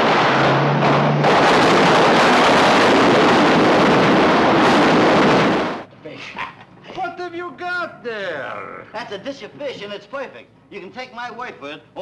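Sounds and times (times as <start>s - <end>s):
jeep engine rushing noise: 0.0s - 5.9s.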